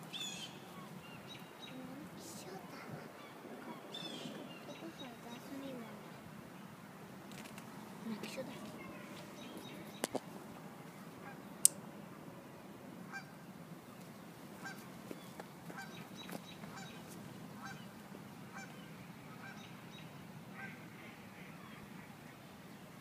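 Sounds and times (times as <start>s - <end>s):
geese honking: 13.1s - 13.3s, 14.6s - 14.8s, 15.7s - 16.0s, 16.7s - 17.0s, 17.6s - 17.9s, 18.5s - 18.8s, 20.5s - 22.2s.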